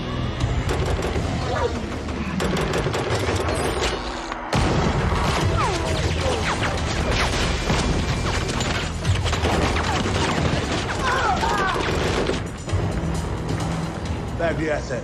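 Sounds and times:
gunfire: 0.6s - 12.5s.

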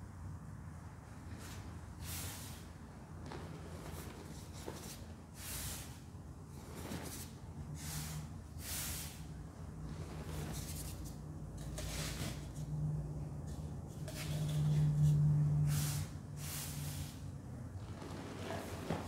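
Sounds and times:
powder pouring swishes: 1.3s - 12.5s, 17.8s - 19.0s.

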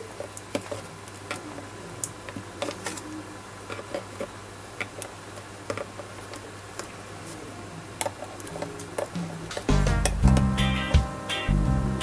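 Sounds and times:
steady low hum: 6.5s - 12.0s.

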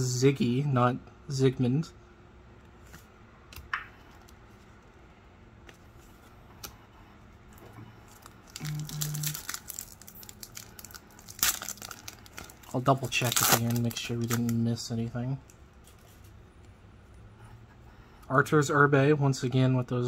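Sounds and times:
foil wrapper tearing: 8.1s - 14.6s.

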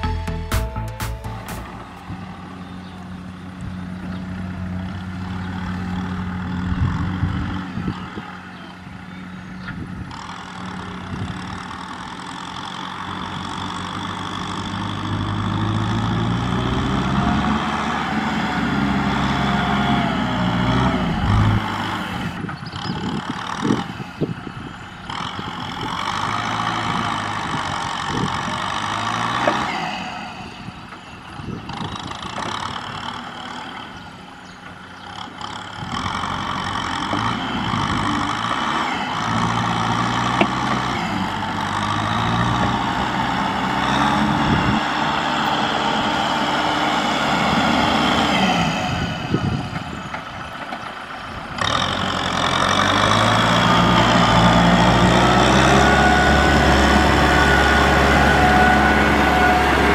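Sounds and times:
diesel tractor engine under load: 0.0s - 59.9s.

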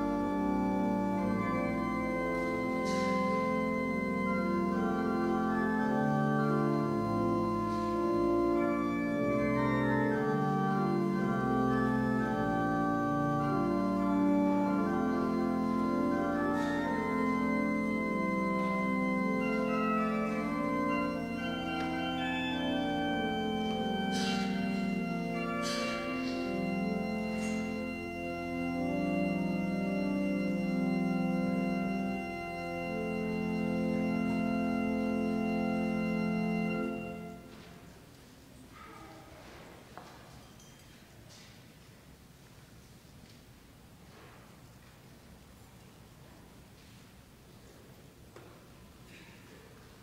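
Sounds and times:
church organ chords: 0.0s - 37.9s.

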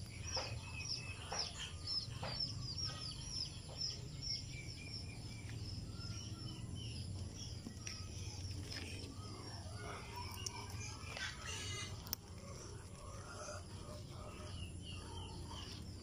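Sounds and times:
small birds chirping: 0.0s - 16.0s
steady low hum: 0.0s - 16.0s
chickens clucking: 7.8s - 15.9s.

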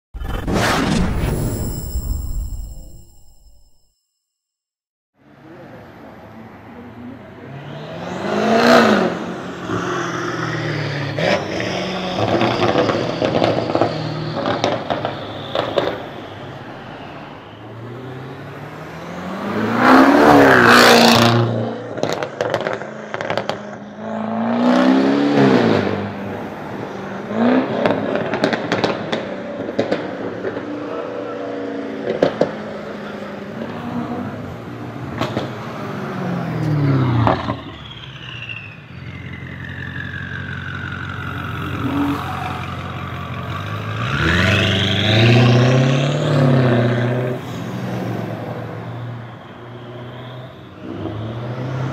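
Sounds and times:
passing car whine: 5.2s - 51.9s
exhaust pops and crackles: 27.8s - 30.6s.

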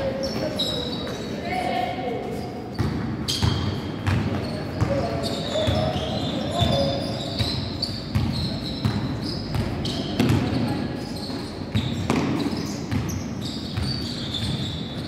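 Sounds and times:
sneakers squeaking on floor: 0.0s - 15.0s
basketball bouncing on hardwood: 7.4s - 10.6s, 11.7s - 13.2s.

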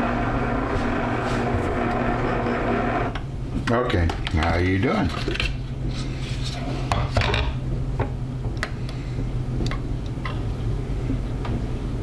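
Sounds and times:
food processor humming: 0.0s - 3.2s.

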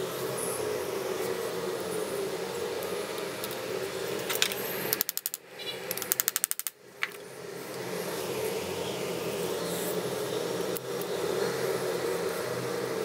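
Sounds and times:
steady hum: 0.0s - 13.0s
small metallic clicks: 4.2s - 7.2s.

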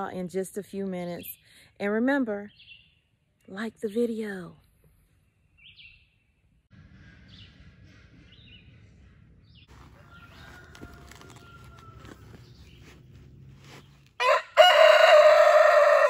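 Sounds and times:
rooster crowing: 9.8s - 12.4s, 14.2s - 16.0s.

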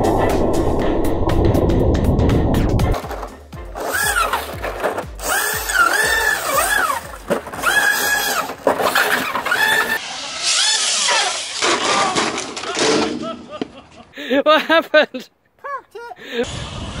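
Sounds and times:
background music: 0.0s - 8.7s
electric motor whining: 3.7s - 11.6s.

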